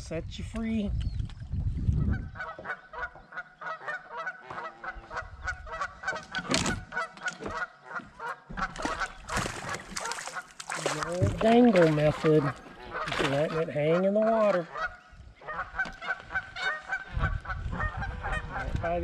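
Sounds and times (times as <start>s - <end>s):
geese honking: 2.2s - 19.0s.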